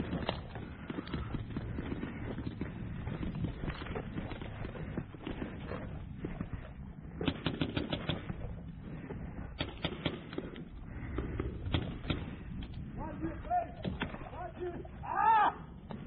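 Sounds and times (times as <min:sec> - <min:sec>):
paintball marker firing: 0:07.2 - 0:08.5, 0:09.6 - 0:10.7, 0:11.6 - 0:12.5.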